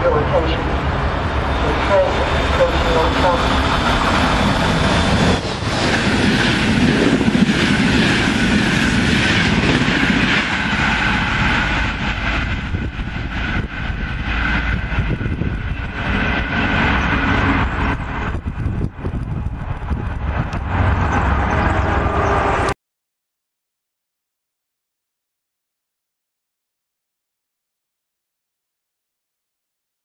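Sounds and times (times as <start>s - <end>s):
train rushing past: 0.0s - 22.8s.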